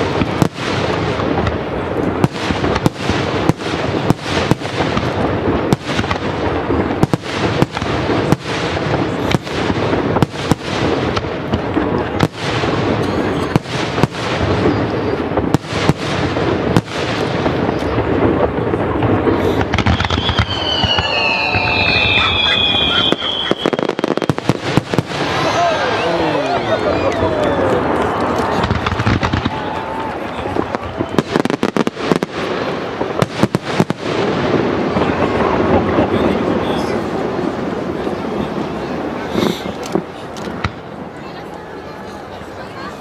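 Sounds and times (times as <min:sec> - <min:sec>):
fireworks rumble and crackle: 0:00.0 - 0:43.0
high whistling fireworks: 0:00.0 - 0:43.0
fireworks shells bursting: 0:19.3 - 0:25.6.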